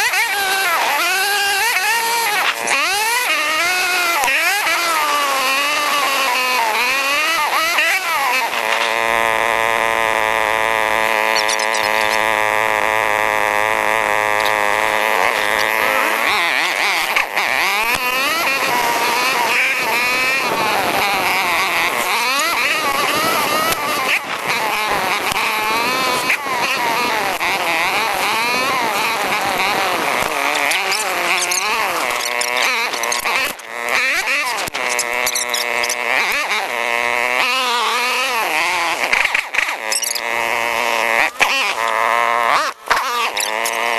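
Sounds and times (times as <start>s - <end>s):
atv engines revving: 0.0s - 43.9s.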